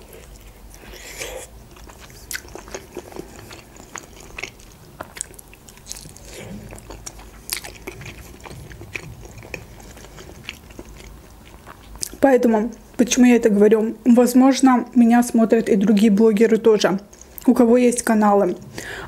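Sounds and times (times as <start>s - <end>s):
person chewing: 0.0s - 12.9s.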